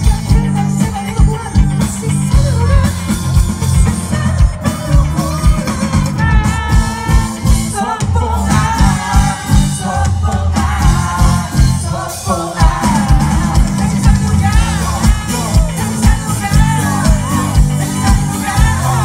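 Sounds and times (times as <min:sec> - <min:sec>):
heavy bass: 0:00.0 - 0:19.0
live rock band playing: 0:00.0 - 0:19.0.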